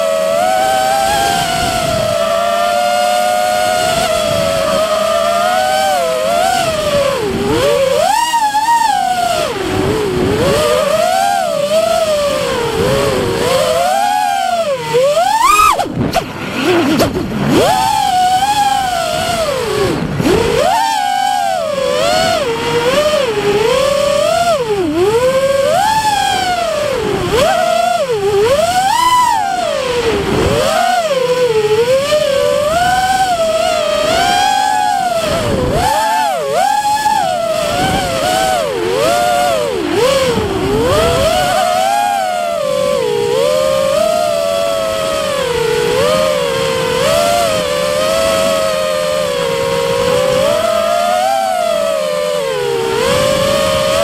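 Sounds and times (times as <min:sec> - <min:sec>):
drone propellers whining: 0:00.0 - 0:54.0.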